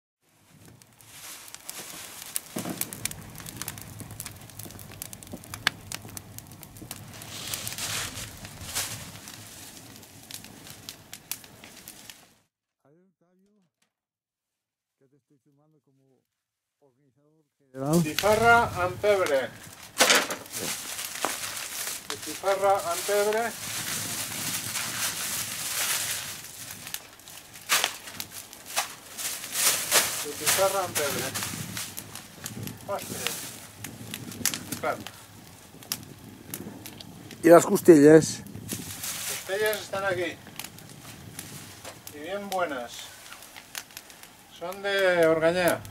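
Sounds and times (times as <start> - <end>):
plastic bag rustling: 0.3 - 10.8, 18.2 - 34.0, 38.7 - 44.5
log fire crackling and popping: 0.3 - 12.5, 17.8 - 45.9.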